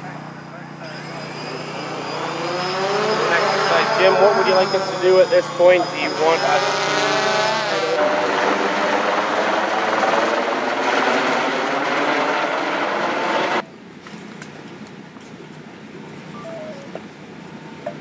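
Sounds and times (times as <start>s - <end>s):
helicopter rotor and turbine: 0.0s - 13.6s.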